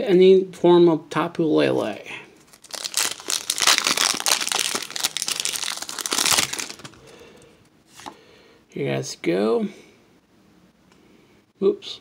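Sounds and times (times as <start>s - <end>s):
foil wrapper tearing and crinkling: 2.5s - 7.1s.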